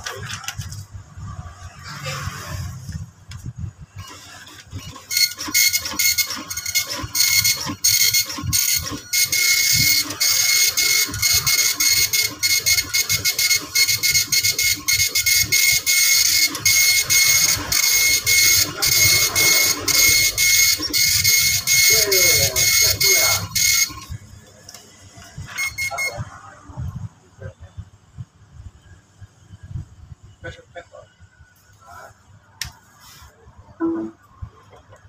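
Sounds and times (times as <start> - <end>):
dot-matrix printer rasping buzz: 4.0 - 24.2, 25.4 - 26.3.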